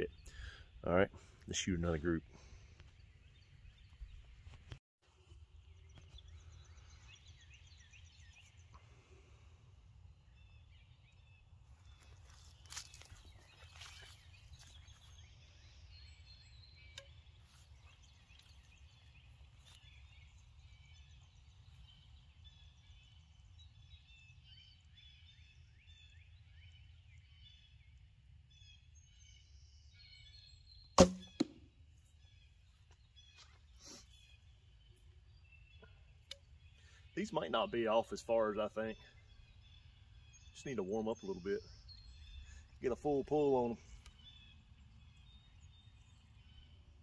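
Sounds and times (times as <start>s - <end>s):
faint birdsong: 0.0s - 47.0s
arrow striking target: 31.0s - 31.6s
bowstring snap: 31.0s - 31.6s.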